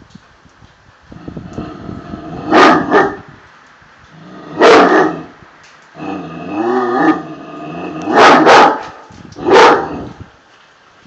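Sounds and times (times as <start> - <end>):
dogs barking: 2.5 - 3.2, 4.6 - 5.3, 8.0 - 10.1
drawn-out dog howl: 6.0 - 8.8, 9.4 - 10.2.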